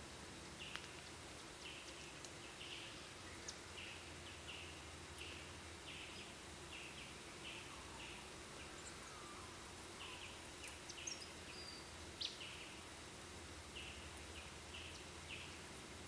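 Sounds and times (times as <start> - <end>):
outdoor hiss: 0.0 - 16.0
faint ticks: 0.6 - 2.4
faint buzzy chirps: 0.6 - 15.8.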